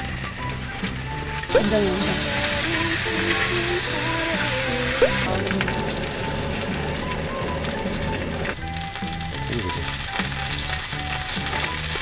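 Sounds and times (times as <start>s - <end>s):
background music with bass line: 0.0s - 12.0s
meat sizzling on a griddle: 2.0s - 5.0s, 8.6s - 12.0s.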